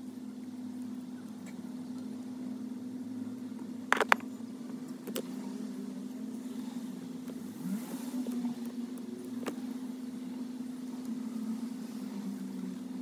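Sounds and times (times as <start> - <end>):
plastic connectors clicking: 3.9 - 4.2.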